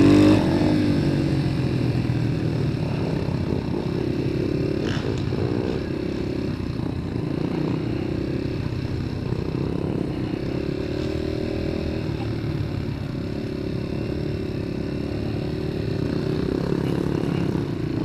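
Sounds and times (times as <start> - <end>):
dirt bike engine running: 0.0 - 18.0.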